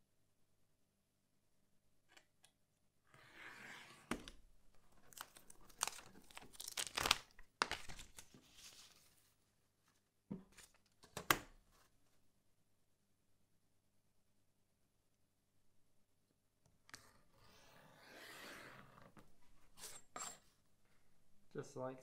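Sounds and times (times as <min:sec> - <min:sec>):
paper rustling and crinkling: 0:04.9 - 0:09.4.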